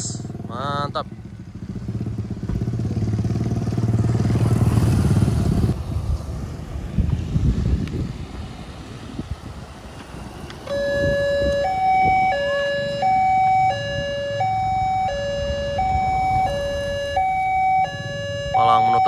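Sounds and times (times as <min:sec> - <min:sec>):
two-tone electronic warning alarm: 0:10.6 - 0:19.0.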